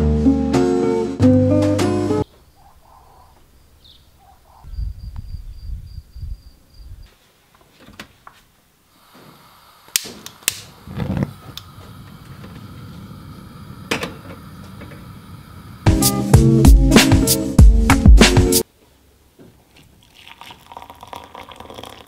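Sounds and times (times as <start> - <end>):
wind rumble on microphone: 4.6 - 7.1
burning gas flame hissing: 8.8 - 16.6
stove igniter clicks: 9.9 - 10.7.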